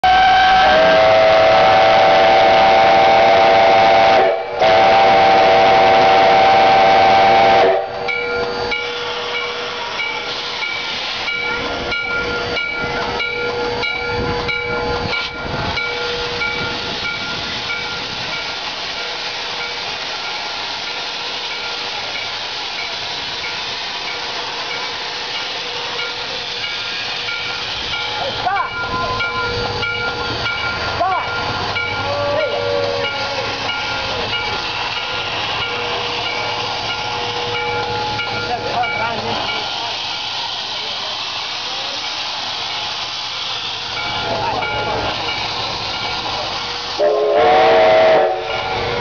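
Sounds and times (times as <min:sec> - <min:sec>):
steam whistle blasts: 0:00.0 - 0:10.7, 0:32.0 - 0:34.1, 0:46.6 - 0:49.0
steam hissing: 0:00.0 - 0:49.0.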